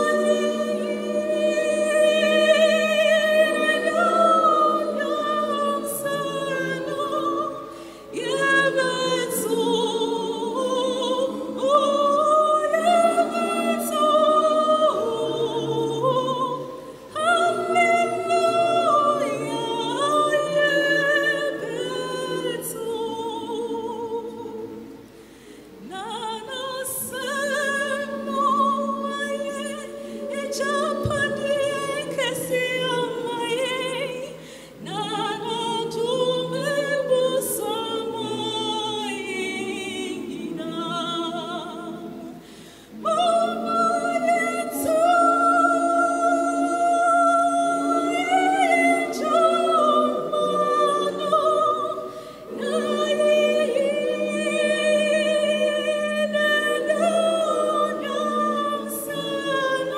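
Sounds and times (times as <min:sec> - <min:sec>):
choir singing: 0:00.0 - 0:59.9
woman singing into microphone: 0:25.9 - 0:42.0.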